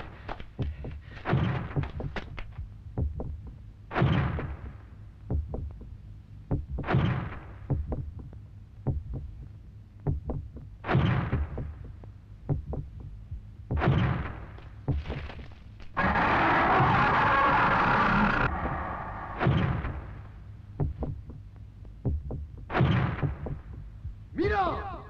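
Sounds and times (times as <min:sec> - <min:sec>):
music: 0:00.0 - 0:25.0
giant monster footsteps booming: 0:13.7 - 0:17.5, 0:22.0 - 0:24.2.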